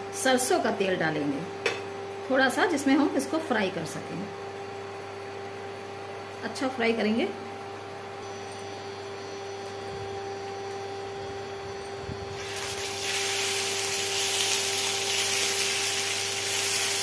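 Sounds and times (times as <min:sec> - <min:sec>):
induction cooktop hum: 0:00.0 - 0:17.0
food sizzling in hot oil: 0:12.4 - 0:17.0.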